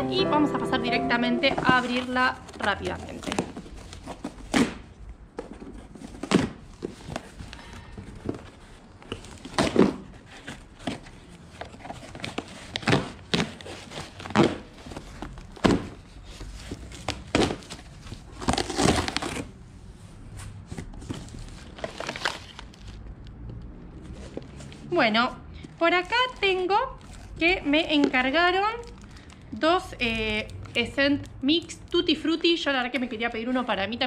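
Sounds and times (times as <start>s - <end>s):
cardboard crinkling and tearing: 1.7s - 4.8s, 5.4s - 19.5s, 20.9s - 23.0s.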